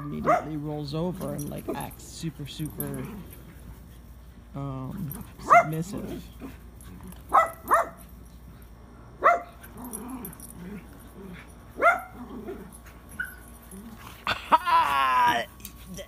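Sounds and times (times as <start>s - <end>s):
dog barking high-pitched yaps: 5.5s - 5.8s, 7.3s - 8.0s, 9.2s - 9.5s, 11.8s - 12.1s.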